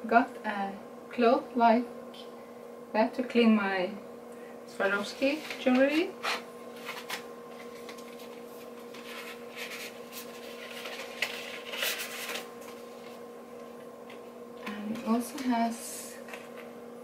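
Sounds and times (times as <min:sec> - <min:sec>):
electrical hum: 0:00.0 - 0:17.0
paper packaging rustling: 0:05.4 - 0:13.2
packaging crinkles: 0:06.2 - 0:13.2.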